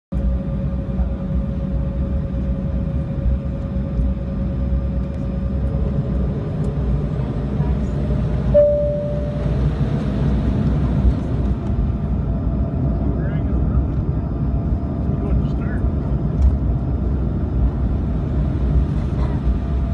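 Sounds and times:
jet engines rumbling: 0.2s - 19.9s
faint steady whine: 8.5s - 10.4s
short clear tone: 8.6s - 9.7s.

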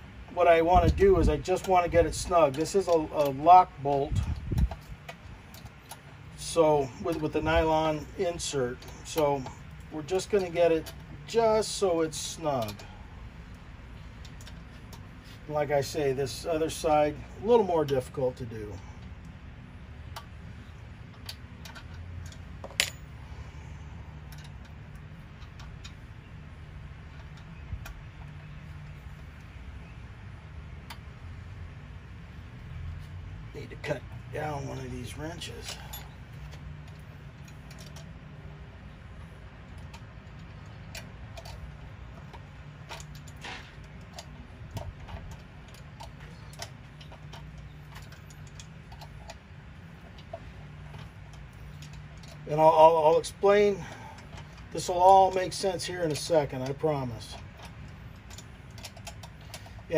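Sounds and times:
low steady hum: 0.0s - 59.9s
wrench clicking and tapping on metal: 0.8s - 12.9s, 21.1s - 23.1s, 39.7s - 59.9s
metal clink: 22.6s - 23.2s
wrench clicking on nut: 50.0s - 59.9s.

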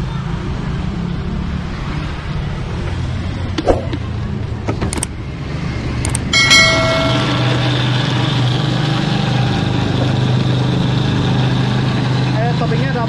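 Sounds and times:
steady low hum: 6.3s - 11.2s.

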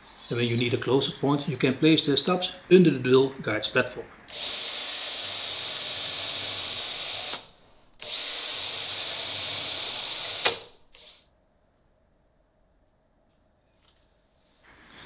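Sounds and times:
power drill boring into plywood: 4.3s - 11.2s.

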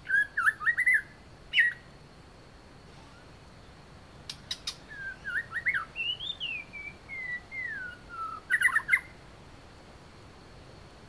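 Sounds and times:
bird singing whistled notes: 0.0s - 1.9s, 2.9s - 3.4s, 4.3s - 9.2s.

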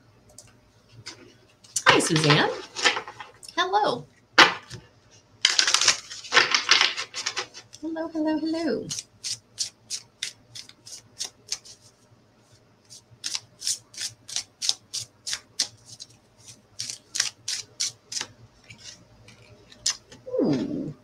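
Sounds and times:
cards being shuffled: 5.5s - 7.8s, 8.9s - 12.0s, 12.8s - 20.8s.

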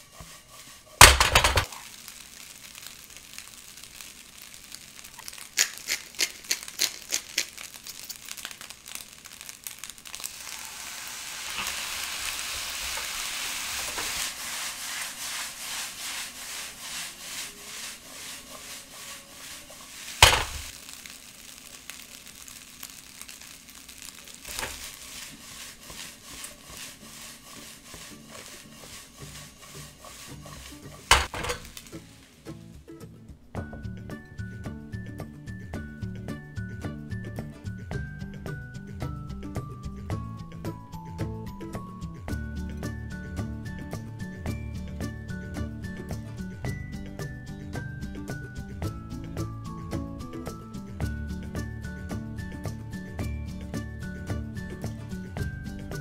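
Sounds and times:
spatula stirring and scraping: 0.0s - 32.7s
rice sizzling in a wok: 0.0s - 56.0s
loud knock from the pan: 1.0s - 1.7s, 20.2s - 20.7s.

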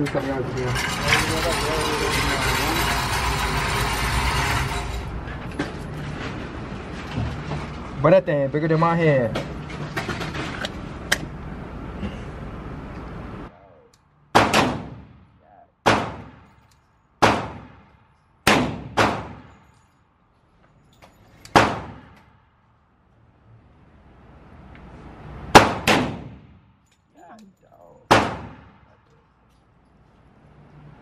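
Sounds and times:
pistol shots with ringing tail: 14.3s - 15.2s, 15.8s - 16.5s, 17.2s - 19.6s, 21.5s - 22.2s, 25.5s - 26.4s, 28.1s - 28.9s.

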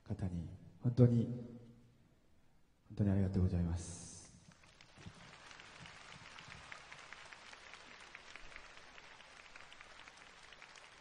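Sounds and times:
faint audience applause: 4.4s - 11.0s.

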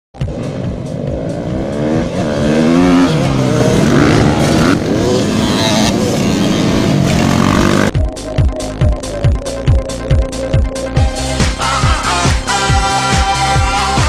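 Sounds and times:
motocross bikes revving: 1.0s - 8.0s.

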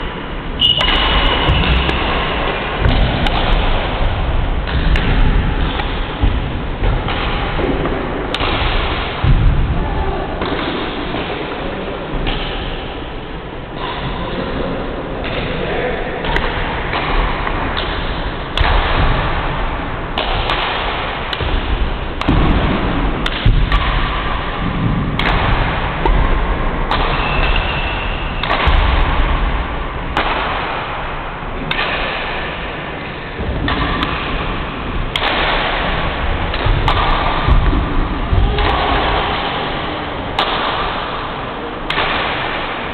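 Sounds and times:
rackets striking shuttlecock: 0.6s - 9.5s, 12.2s - 13.0s, 16.2s - 42.9s.

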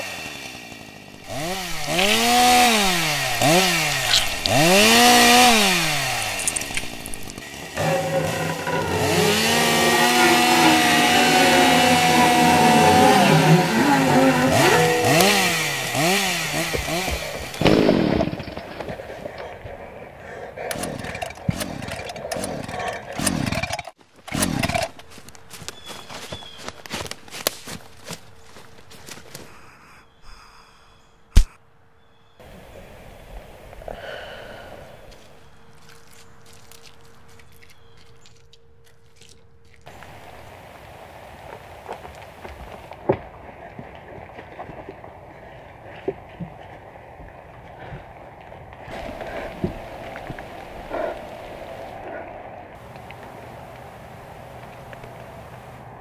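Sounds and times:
chainsaw engine revving: 0.0s - 19.7s, 20.3s - 25.2s, 48.9s - 52.0s
sharp clicks: 1.3s - 8.8s, 20.6s - 25.8s.

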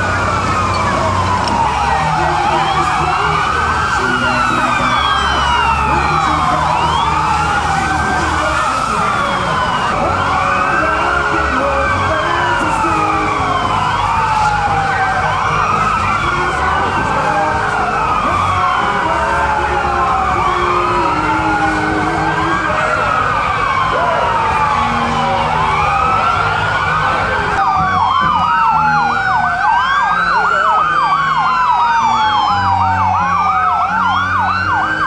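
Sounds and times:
fire truck sirens wailing: 0.0s - 35.0s.

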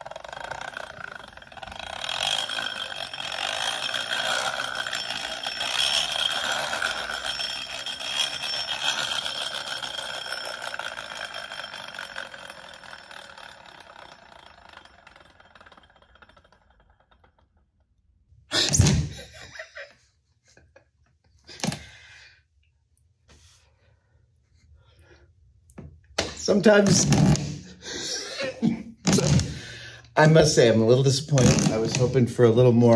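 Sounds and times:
toy car flywheel whirring and rattling: 0.0s - 17.9s.

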